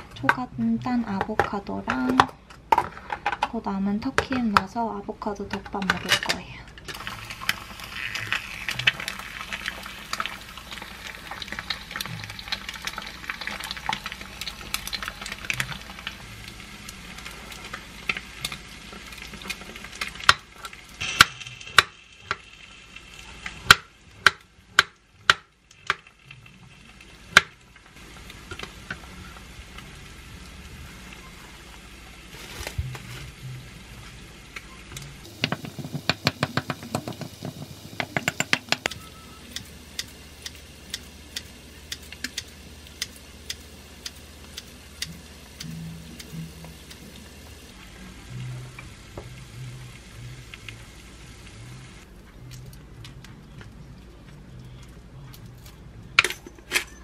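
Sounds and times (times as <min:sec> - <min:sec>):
egg sizzling in a pan: 0:06.9 - 0:52.1
knife knocking cutting board: 0:35.4 - 0:38.8.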